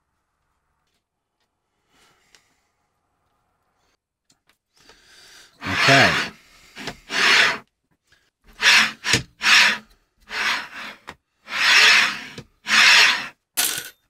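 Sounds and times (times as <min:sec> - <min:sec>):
bearings rasping on steel rods: 0:05.6 - 0:07.6, 0:08.5 - 0:13.4.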